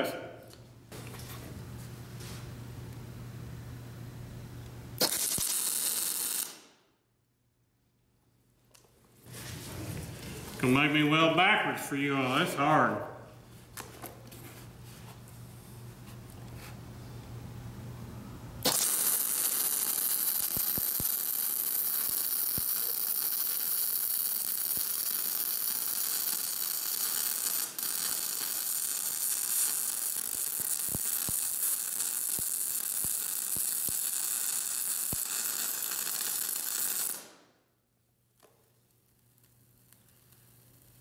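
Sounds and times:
welding arc crackling hiss: 0:05.0 - 0:06.8, 0:18.6 - 0:37.6, 0:38.8 - 0:41.0.

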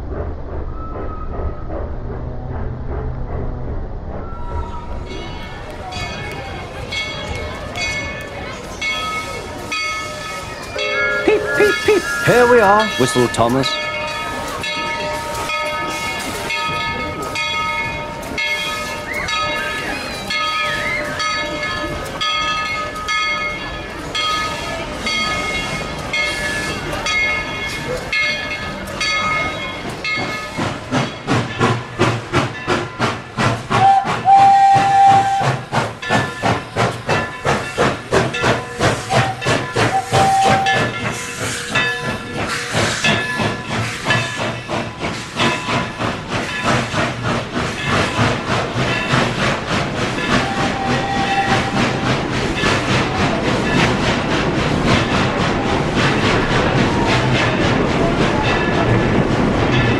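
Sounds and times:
low rumble: 0:00.0 - 0:05.9
steam locomotive chuffing: 0:00.0 - 0:59.9
steam hissing: 0:28.6 - 0:59.9
train whistle: 0:33.7 - 0:35.6, 0:39.0 - 0:40.9, 0:50.4 - 0:52.2.

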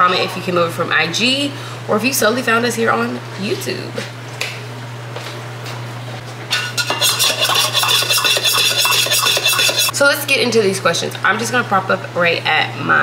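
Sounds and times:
scratchy rubbing noise: 0:07.0 - 0:09.9.

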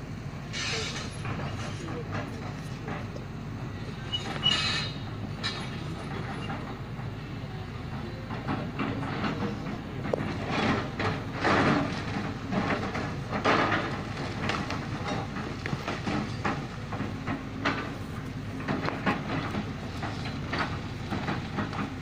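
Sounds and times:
excavator diesel engine: 0:00.0 - 0:22.0
rock and bucket clanking: 0:08.4 - 0:22.0.

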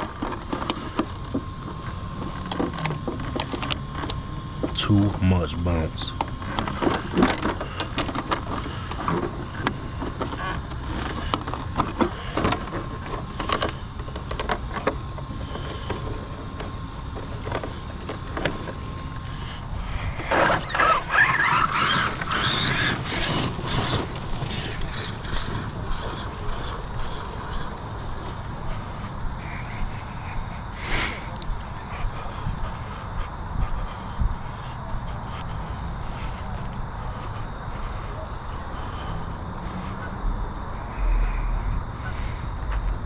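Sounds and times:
rc truck chassis rattling: 0:00.0 - 0:31.5
electric motor whining: 0:00.0 - 0:32.4.

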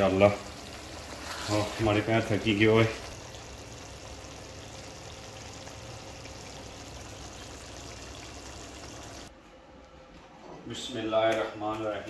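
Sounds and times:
curry simmering and sizzling: 0:00.0 - 0:09.3.

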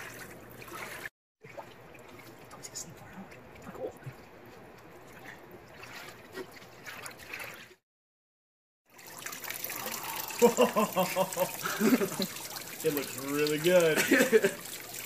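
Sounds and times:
water lapping and splashing: 0:00.0 - 0:07.8, 0:08.9 - 0:15.0
water running off: 0:08.9 - 0:15.0.

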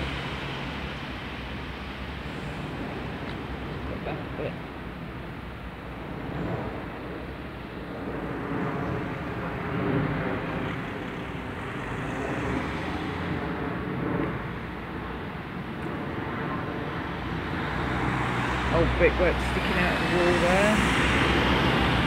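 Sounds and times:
vehicles driving past: 0:00.0 - 0:22.0.

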